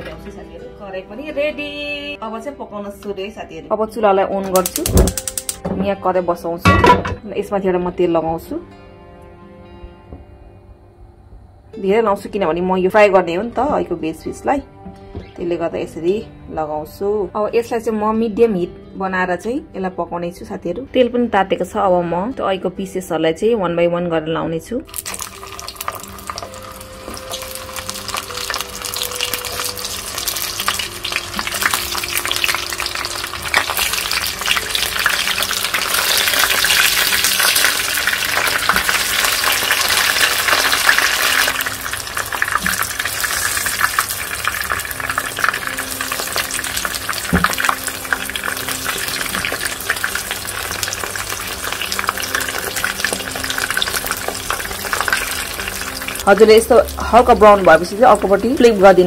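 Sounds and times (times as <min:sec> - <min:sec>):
food frying in hot oil: 0:24.9 - 0:59.0.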